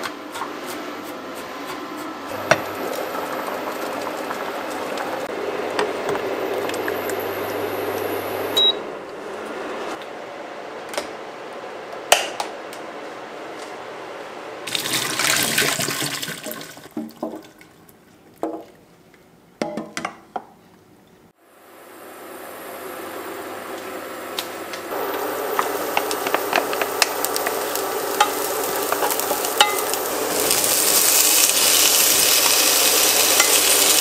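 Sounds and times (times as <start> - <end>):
water boiling in a pot: 2.3 - 8.6, 14.7 - 17.8, 21.5 - 34.0
water rushing out of pot: 14.7 - 17.6.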